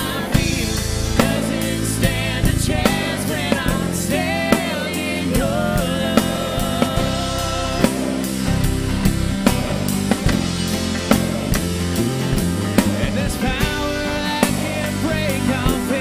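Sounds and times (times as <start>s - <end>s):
woman singing: 0.0s - 8.0s
drum kit beat: 0.0s - 16.0s
worship band playing: 0.0s - 16.0s.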